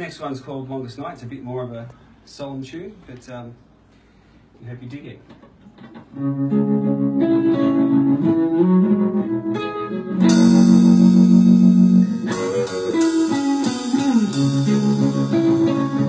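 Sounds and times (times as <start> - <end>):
slow electric guitar music: 5.8 - 16.0.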